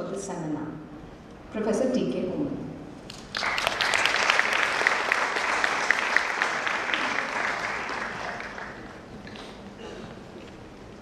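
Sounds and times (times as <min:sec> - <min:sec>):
audience applauding: 0:03.1 - 0:09.6.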